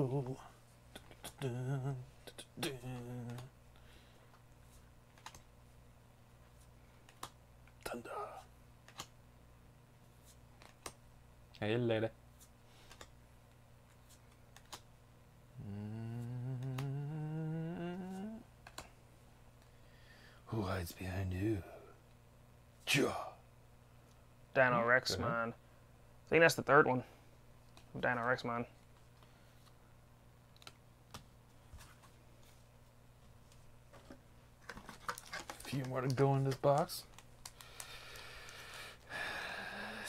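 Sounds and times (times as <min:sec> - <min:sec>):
man humming a long note: 0:01.3 - 0:03.5, 0:15.6 - 0:18.5
trading cards clicking: 0:05.1 - 0:05.5, 0:07.0 - 0:07.8, 0:08.8 - 0:09.1, 0:12.8 - 0:13.2, 0:13.9 - 0:14.9, 0:34.7 - 0:38.8.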